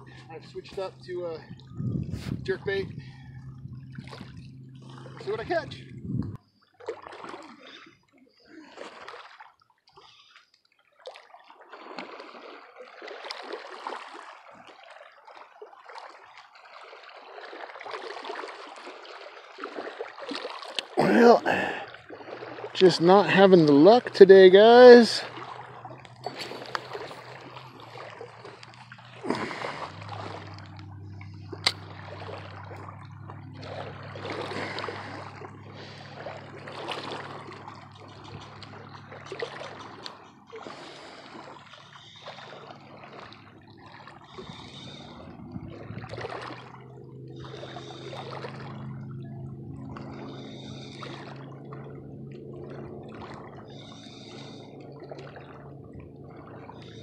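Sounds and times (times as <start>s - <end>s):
steady low hum: 0.0s - 6.6s, 21.0s - 57.0s
lake water lapping shoreline: 0.0s - 57.0s.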